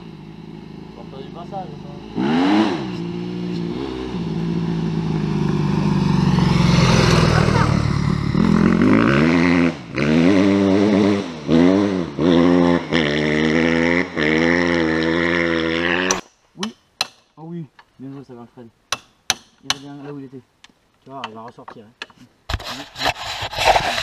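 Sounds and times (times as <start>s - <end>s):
dirt bike engine revving: 0.0s - 16.2s
voices: 0.9s - 2.2s, 7.1s - 8.1s.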